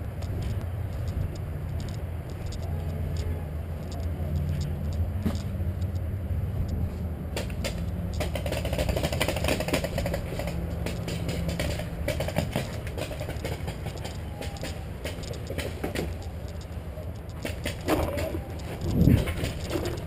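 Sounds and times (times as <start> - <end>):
rustling and clicking in grass: 0.0 - 20.0
wind rumble on microphone: 15.3 - 20.0.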